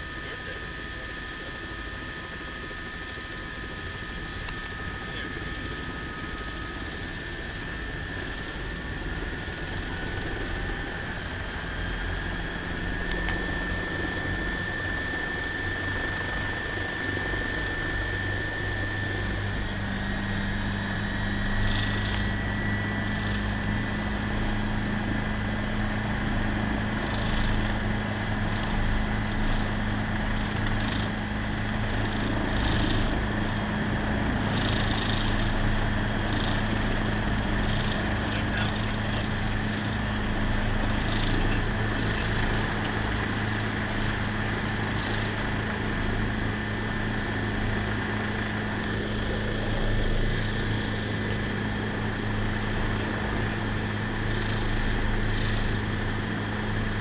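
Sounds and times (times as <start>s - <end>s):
helicopter turbine whine: 0.0s - 57.0s
low steady drone: 0.0s - 57.0s.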